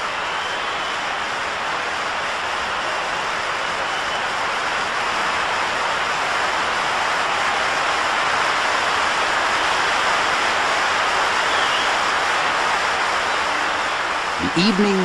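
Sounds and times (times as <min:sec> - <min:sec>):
stadium crowd applauding: 0:00.0 - 0:15.0.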